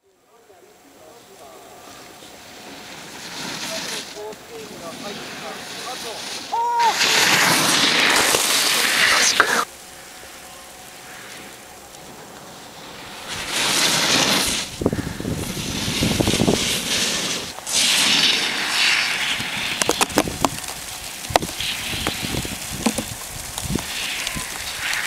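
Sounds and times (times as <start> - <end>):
snowboard scraping on snow: 1.4 - 25.0
wind on microphone: 13.2 - 18.3, 19.2 - 25.0.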